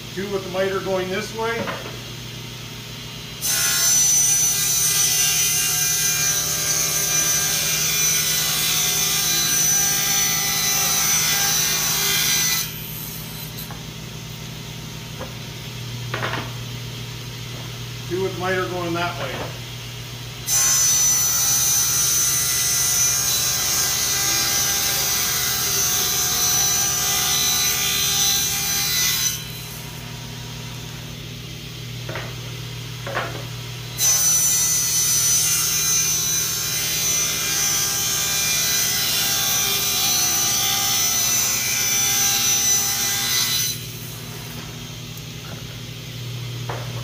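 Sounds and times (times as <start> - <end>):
table saw cutting board: 3.4 - 14.0, 16.1 - 16.6, 20.4 - 31.1, 32.0 - 45.8.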